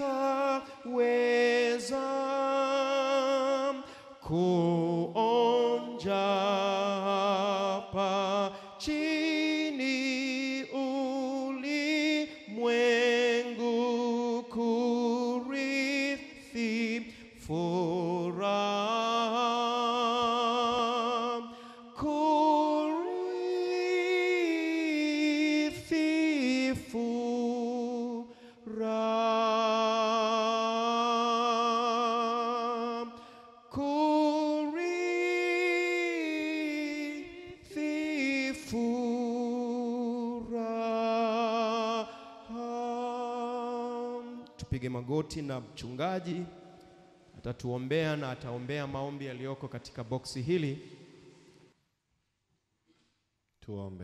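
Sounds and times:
man singing a hymn: 0.0s - 51.1s.

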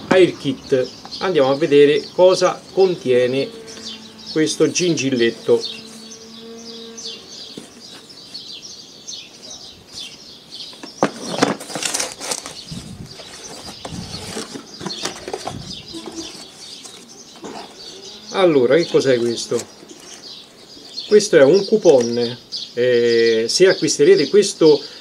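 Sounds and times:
small birds chirping: 0.0s - 25.0s
rustling of cardboard flap: 10.8s - 17.7s.

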